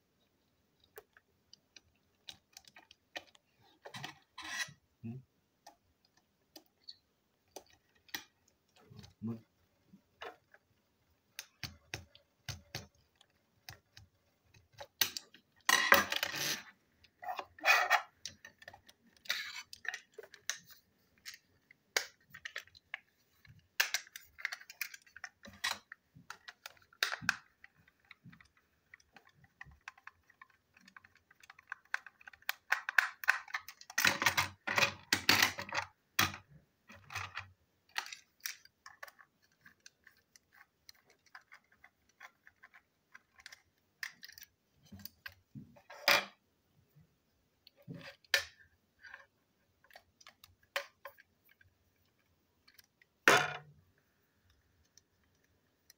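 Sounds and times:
plastic parts clattering: 14.6s - 46.4s.

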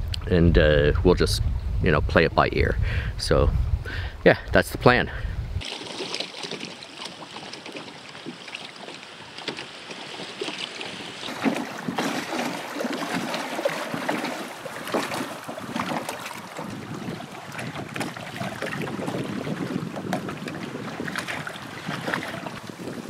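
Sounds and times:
waves lapping against rocks: 5.6s - 23.0s.

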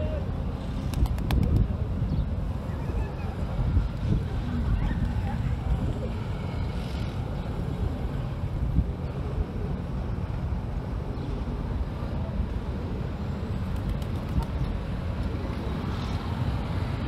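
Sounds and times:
street traffic rumble: 0.0s - 17.0s
wind buffeting microphone: 0.6s - 10.9s.

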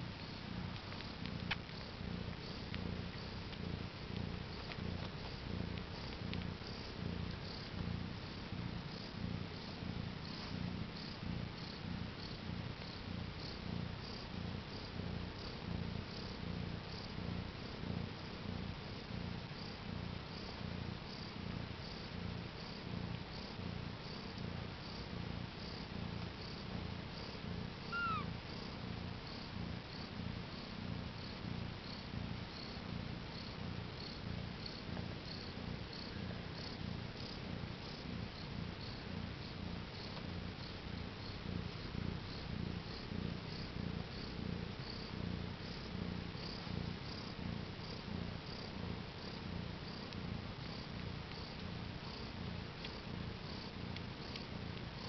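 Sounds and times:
cat purring: 0.0s - 55.0s
kitten squeak: 27.9s - 28.3s.

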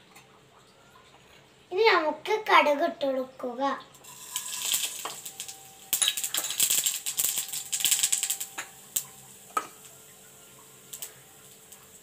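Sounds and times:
mustard seeds popping in oil: 4.0s - 12.0s.

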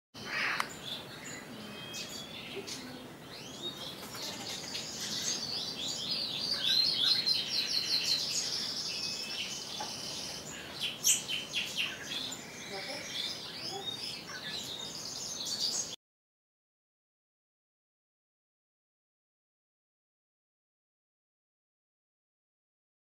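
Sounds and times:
small birds chirping and singing: 0.2s - 16.0s.

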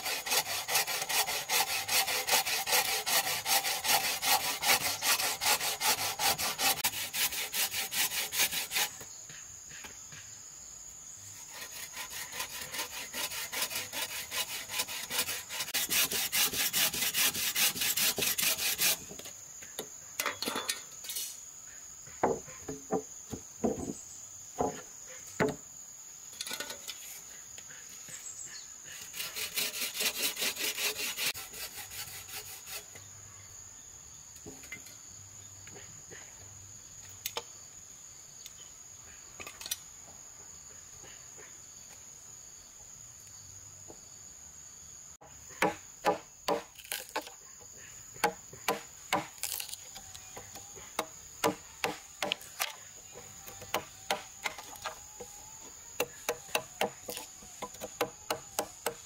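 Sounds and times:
high insect buzz: 41.7s - 59.0s
hammer striking chisel: 56.0s - 59.0s.

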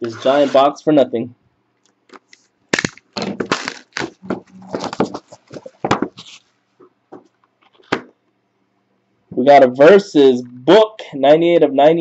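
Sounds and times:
plastic wrap and cardboard rustling: 2.2s - 6.6s.

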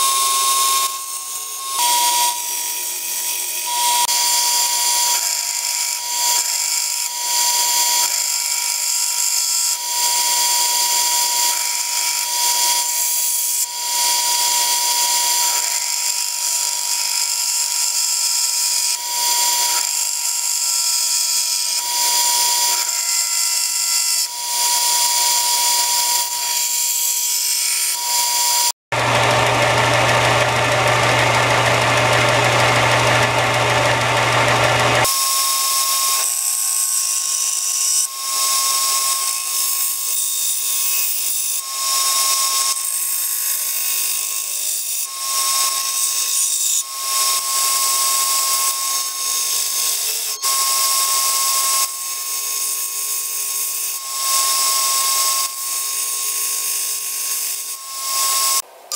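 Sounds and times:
wood grinding on sander: 0.0s - 58.9s
belt sander whining: 27.9s - 40.1s, 41.6s - 58.9s.

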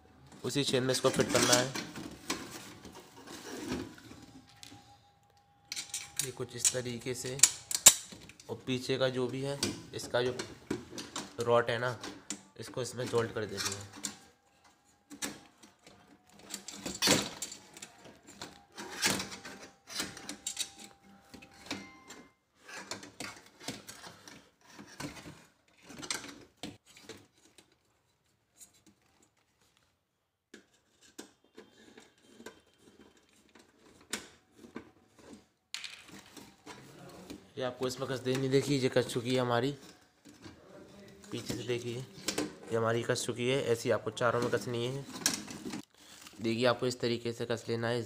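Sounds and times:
metal parts clicking and clinking: 5.7s - 24.4s.

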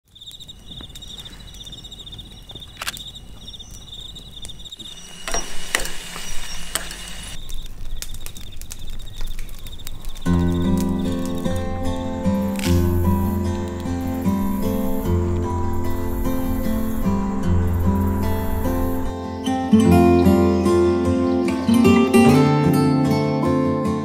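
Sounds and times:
campfire crackling and popping: 0.1s - 19.2s
insects trilling: 0.1s - 22.3s
music: 10.3s - 24.0s.

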